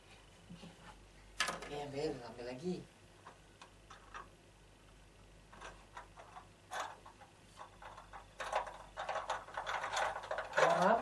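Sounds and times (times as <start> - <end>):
wooden toy pieces clicking: 7.8 - 11.0.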